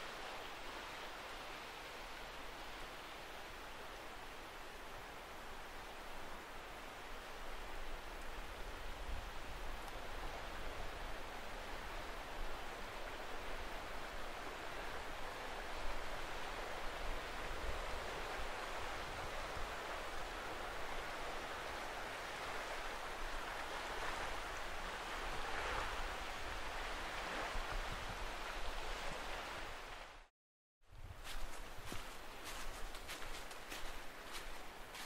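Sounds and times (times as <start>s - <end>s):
rushing wind or water: 0.0s - 35.0s.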